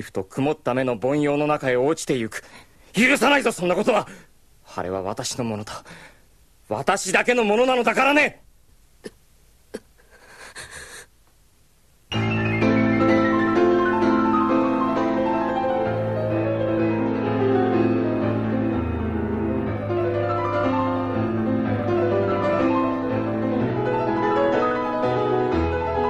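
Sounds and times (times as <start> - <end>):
piano music: 12.1 - 26.0.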